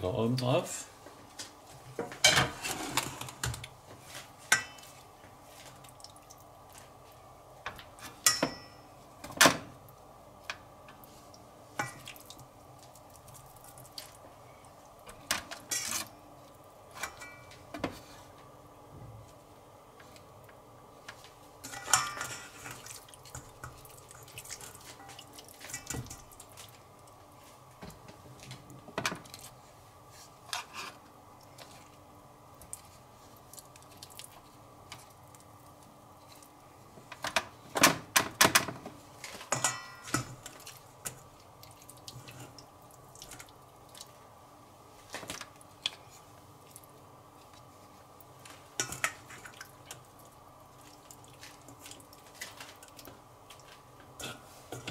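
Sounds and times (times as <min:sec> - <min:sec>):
faint steady hum: 0:00.0 - 0:54.9
dishes and utensils clinking: 0:17.0 - 0:17.6, 0:21.6 - 0:23.8, 0:39.5 - 0:40.4.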